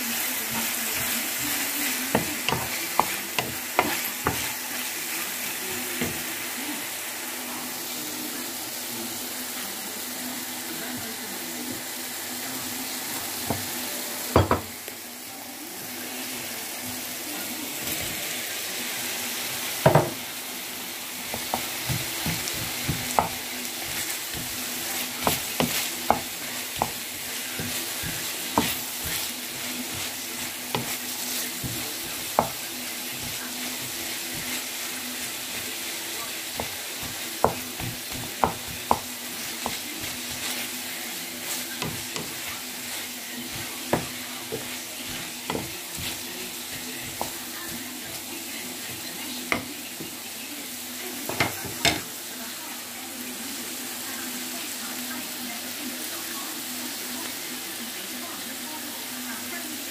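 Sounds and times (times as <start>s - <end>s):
food sizzling in a frying pan: 0.0s - 59.9s
wooden spatula scraping a pan: 0.1s - 4.9s, 21.3s - 35.8s, 36.5s - 48.2s.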